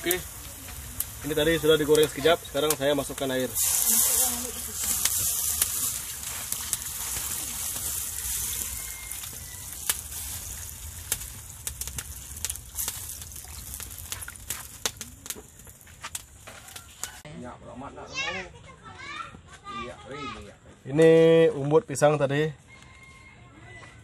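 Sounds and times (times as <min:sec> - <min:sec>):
sharp pops: 0:00.0 - 0:17.3
water sizzling in hot pot: 0:00.0 - 0:17.3
wood fire crackling: 0:00.0 - 0:18.5.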